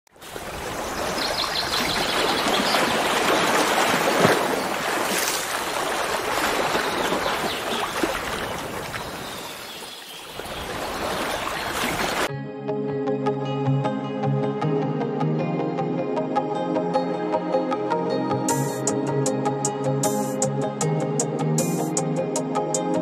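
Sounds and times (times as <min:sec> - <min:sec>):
rushing water: 0:00.1 - 0:12.3.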